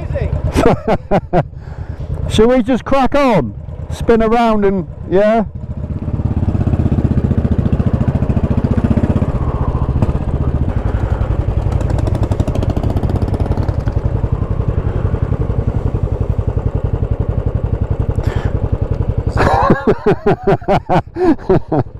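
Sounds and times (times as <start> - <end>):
motorcycle engine thumping: 4.9 - 19.9.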